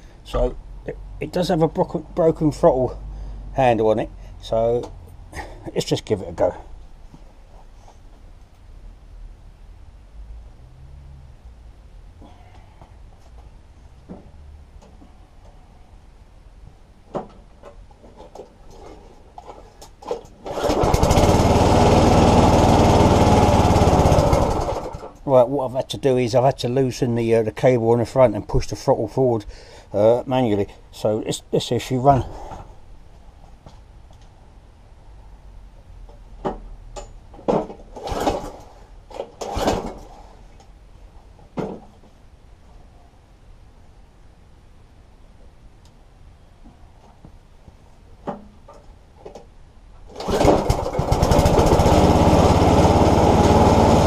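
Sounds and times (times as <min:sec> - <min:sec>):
lawn mower engine running: 0:19.4 - 0:25.2, 0:37.9 - 0:40.3, 0:50.1 - 0:54.0.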